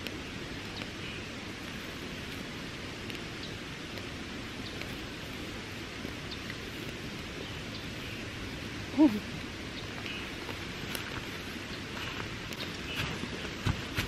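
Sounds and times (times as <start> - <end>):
campfire crackling and popping: 0.0 - 14.0
voiced grunt or call: 8.9 - 9.4.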